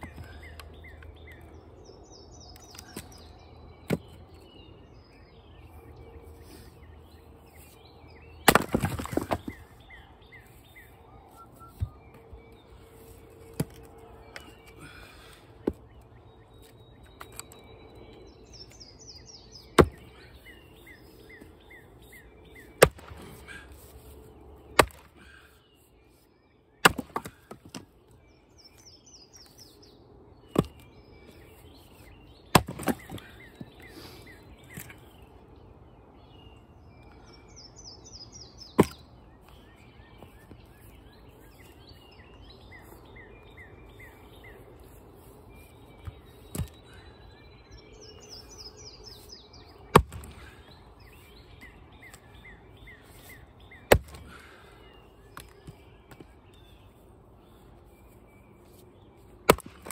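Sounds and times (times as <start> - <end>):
birds singing: 0.0 - 59.9
axe striking firewood: 3.8 - 4.2, 8.4 - 9.6, 13.5 - 13.9, 19.7 - 20.2, 22.7 - 23.6, 24.7 - 25.4, 26.8 - 27.9, 30.5 - 30.9, 32.5 - 33.7, 38.7 - 39.1, 46.0 - 46.8, 49.9 - 50.7, 53.8 - 54.6, 59.4 - 59.9
split wood pieces clattering: 8.4 - 9.6.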